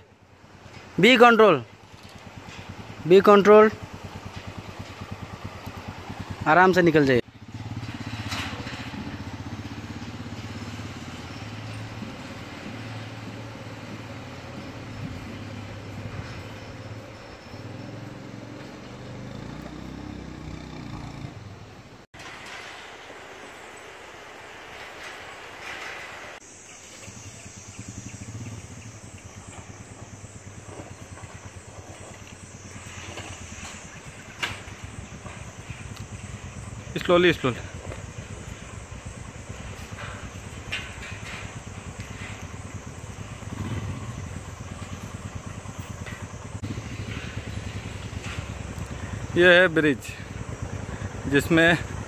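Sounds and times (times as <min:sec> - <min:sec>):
motorcycle engine running: 0:00.0 - 0:21.8, 0:26.5 - 0:52.0
tyres rolling over metal grating: 0:07.5 - 0:09.6, 0:22.2 - 0:28.8.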